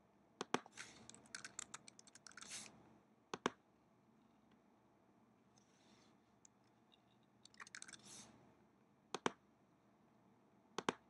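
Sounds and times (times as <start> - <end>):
computer keyboard typing: 0.4 - 2.5, 7.4 - 8.0.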